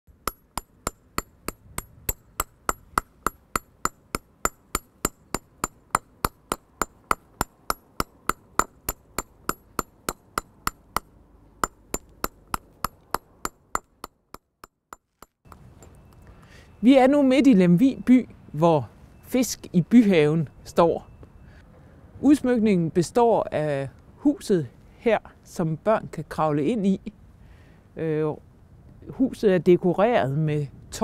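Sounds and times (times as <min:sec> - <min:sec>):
hammer striking chisel on stone: 0:00.1 - 0:16.0.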